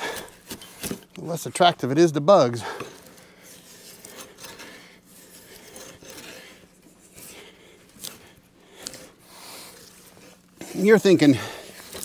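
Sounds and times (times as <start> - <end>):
drawknife scraping bark: 2.7 - 7.4.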